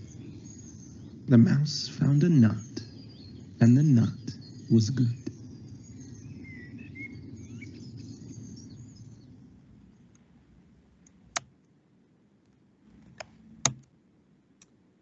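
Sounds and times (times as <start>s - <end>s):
birds chirping: 0.0s - 11.4s
sharp click: 13.2s - 13.9s.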